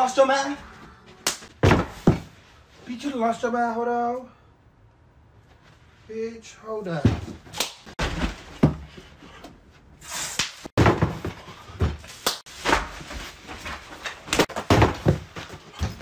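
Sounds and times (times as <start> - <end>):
thumps and slaps: 1.2 - 2.4.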